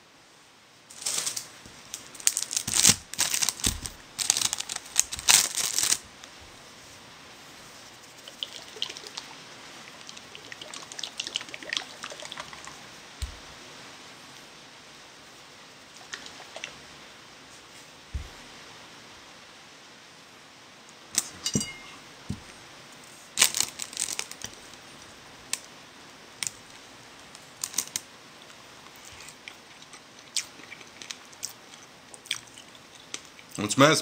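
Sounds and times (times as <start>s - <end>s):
plastic wrapping crinkling: 0.9s - 6.4s, 23.4s - 24.8s, 27.4s - 28.1s
soft thump: 18.2s - 18.4s.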